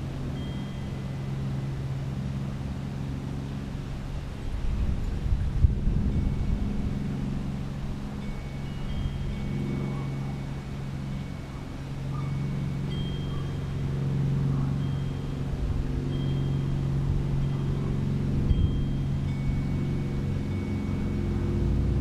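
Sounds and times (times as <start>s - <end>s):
engine humming: 0.0s - 22.0s.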